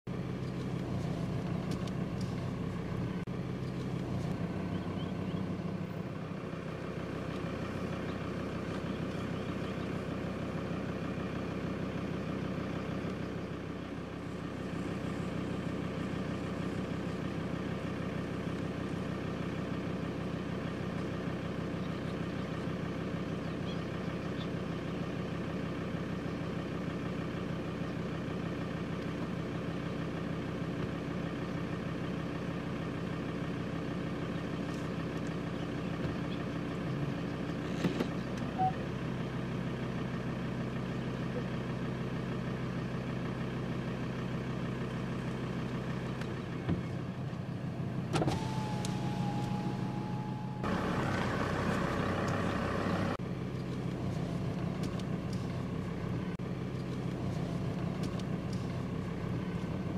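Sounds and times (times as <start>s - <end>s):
car engine idling: 0.0s - 59.9s.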